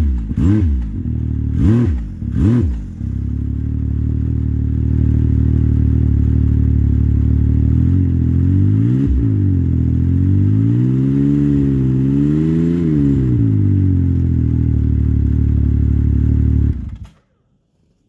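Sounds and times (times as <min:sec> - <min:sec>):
snowmobile engine revving: 0:01.5 - 0:03.0.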